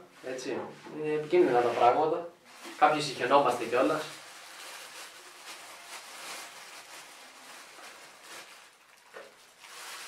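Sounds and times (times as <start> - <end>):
plastic bag crinkling: 2.5 - 10.0.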